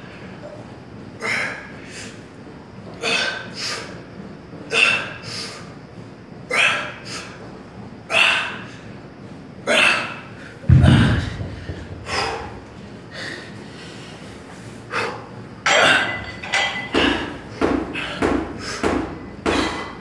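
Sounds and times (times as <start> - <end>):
heavy low thump: 10.7 - 13.2.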